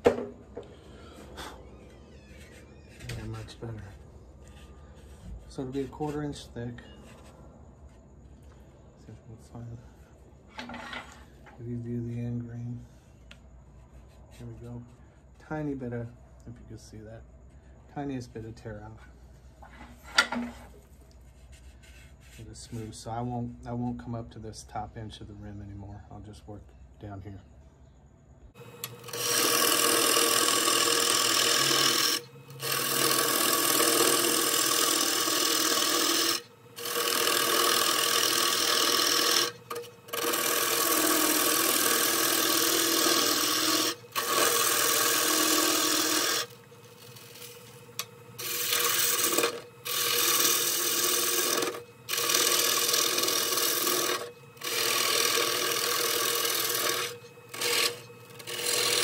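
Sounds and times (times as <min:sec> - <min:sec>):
gouge cutting wood on lathe: 0:28.6 - 0:59.0
lathe hum: 0:28.6 - 0:59.0.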